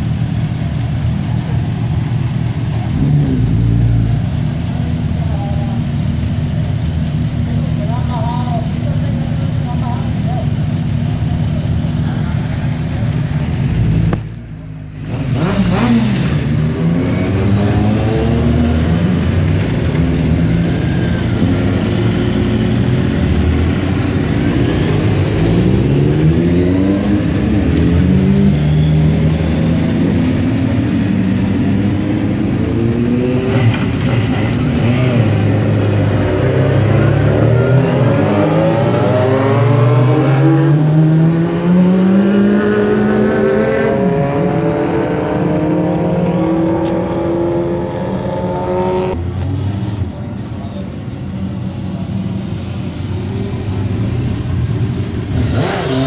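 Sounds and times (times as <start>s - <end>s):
motorcycle engines idling: 0.0s - 16.8s, 49.5s - 55.5s
motorcycles accelerating away: 0.1s - 14.3s, 15.0s - 49.6s, 51.2s - 56.0s.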